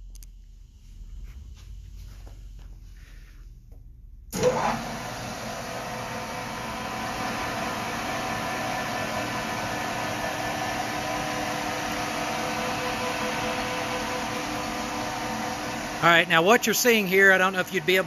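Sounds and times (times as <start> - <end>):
lathe switching on jolt: 4.3 - 5.2
metal lathe whirring: 4.4 - 18.0.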